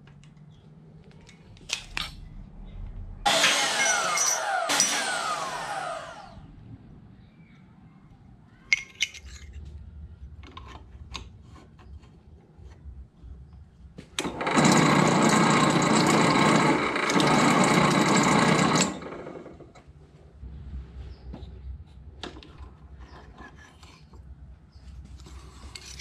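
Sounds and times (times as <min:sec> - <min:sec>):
drill press drilling steel: 0:03.3 - 0:06.4, 0:14.2 - 0:19.6
metal parts clicking and knocking: 0:08.7 - 0:09.8, 0:25.2 - 0:26.0.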